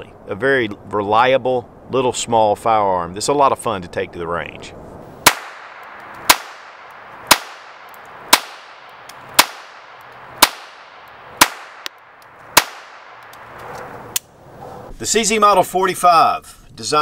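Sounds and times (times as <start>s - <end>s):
pistol shots with echo: 5.2s - 13.6s.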